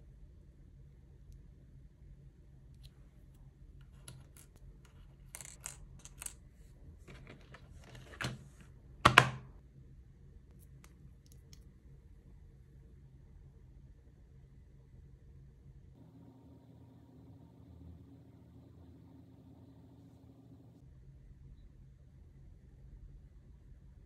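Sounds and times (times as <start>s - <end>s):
plastic case clack: 7.1s - 9.5s.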